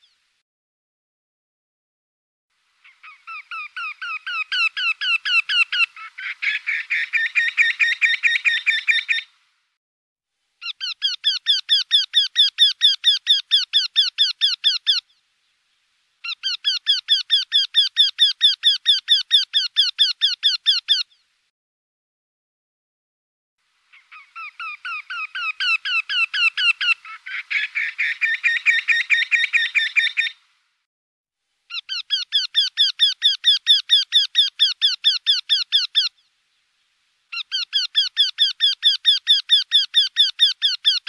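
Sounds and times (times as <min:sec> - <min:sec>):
bird calling repeated notes: 0:02.8 - 0:09.3, 0:10.6 - 0:15.2, 0:16.2 - 0:21.2, 0:23.9 - 0:30.4, 0:31.7 - 0:36.3, 0:37.3 - 0:41.0.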